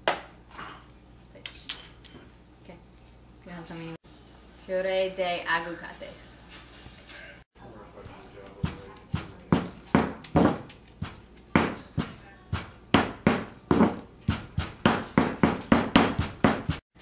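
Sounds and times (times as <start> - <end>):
stone pestle pounding in mortar: 8.6 - 16.8.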